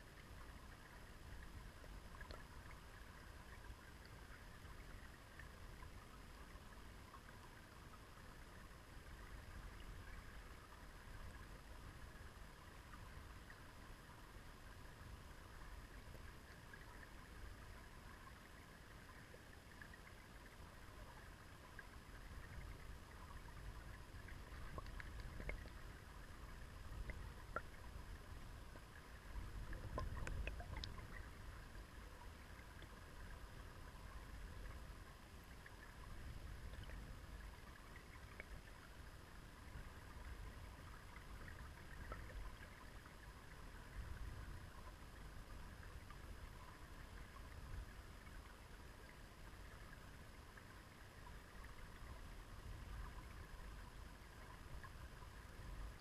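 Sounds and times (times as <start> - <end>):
small ticks and clicks: 0.0 - 13.6, 19.0 - 33.4, 36.6 - 39.1
underwater river rumble: 0.0 - 56.0.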